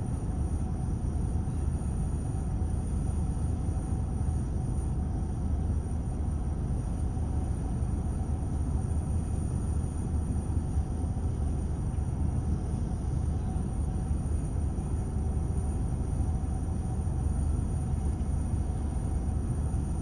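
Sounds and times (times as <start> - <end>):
low rumble of road traffic: 4.7 - 20.0.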